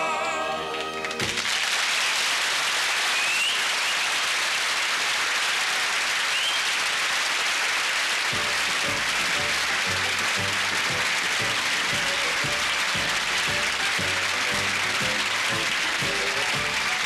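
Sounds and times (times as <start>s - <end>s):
music: 0.0s - 1.5s, 8.3s - 17.0s
audience applauding: 0.7s - 17.0s.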